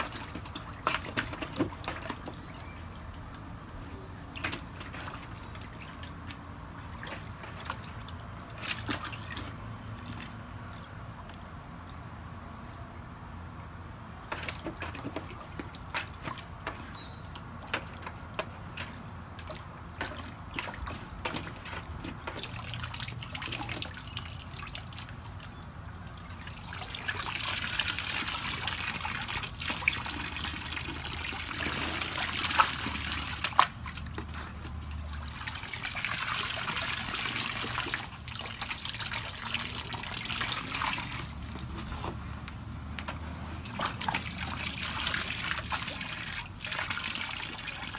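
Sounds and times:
small water splashes: 0.0 - 12.2, 14.1 - 41.7, 43.6 - 47.9
water pouring into pool: 26.2 - 34.1, 34.9 - 41.4, 43.7 - 47.9
dog lapping water: 26.2 - 41.3, 43.7 - 47.9.

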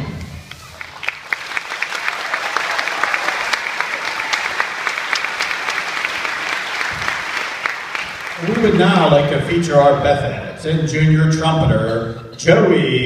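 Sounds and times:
audience applauding: 0.4 - 9.3.

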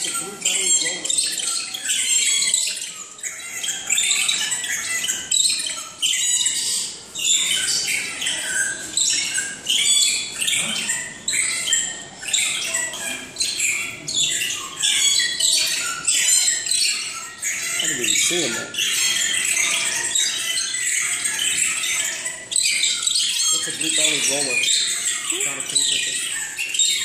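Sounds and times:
chorus of birds chirping: 0.0 - 27.0.

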